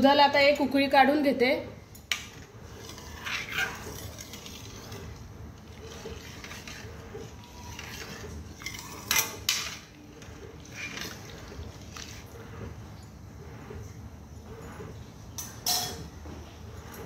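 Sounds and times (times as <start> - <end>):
metal spoon scraping pan: 2.0 - 12.7.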